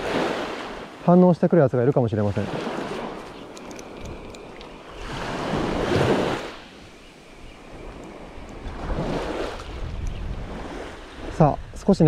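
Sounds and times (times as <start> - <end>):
small waves breaking on beach: 0.0 - 12.0
wind buffeting microphone: 2.5 - 12.0.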